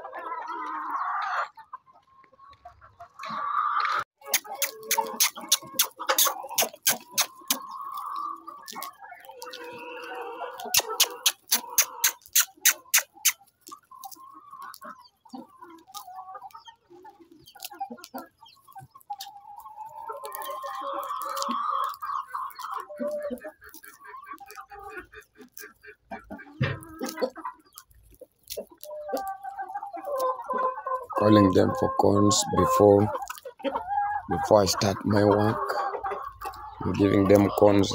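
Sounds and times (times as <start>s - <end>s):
chickens clucking: 0.0s - 37.9s
sharp clicks: 4.2s - 7.7s, 10.6s - 13.4s.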